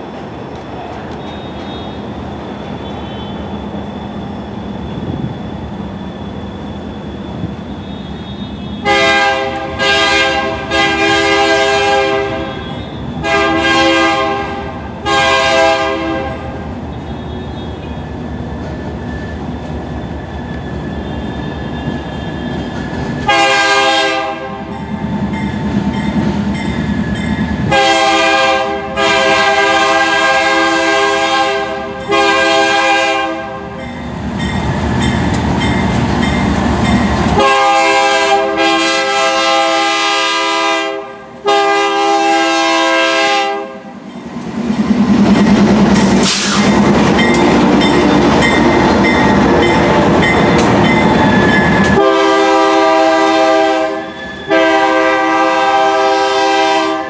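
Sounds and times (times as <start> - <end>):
train rumbling: 0.0 - 57.0
locomotive air horn blasts: 2.7 - 3.5, 7.8 - 18.0, 23.2 - 24.7, 27.7 - 33.8, 37.4 - 43.9, 51.9 - 57.0.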